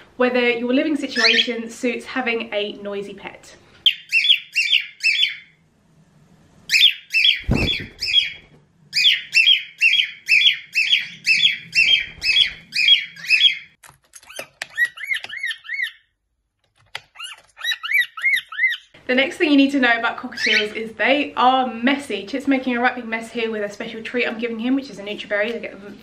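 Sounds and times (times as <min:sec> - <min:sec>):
cockatiels calling: 0:01.2 - 0:01.6, 0:03.8 - 0:05.5, 0:06.7 - 0:16.0, 0:17.2 - 0:19.0, 0:20.3 - 0:20.8.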